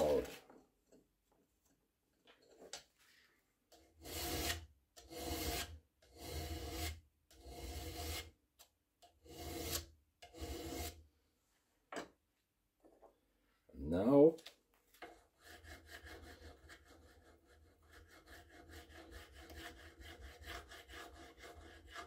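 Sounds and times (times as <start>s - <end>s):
hand file rasping on steel: 3.7s - 8.4s, 9.2s - 11.0s, 15.1s - 22.0s.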